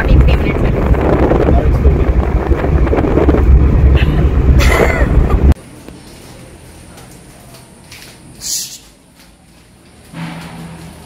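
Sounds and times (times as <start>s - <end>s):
road and wind noise in car: 0.0s - 5.6s.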